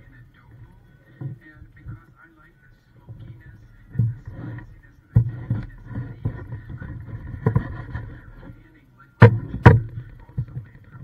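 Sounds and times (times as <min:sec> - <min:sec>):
fruit knocking and rubbing: 0:03.1 - 0:08.6, 0:09.2 - 0:11.0.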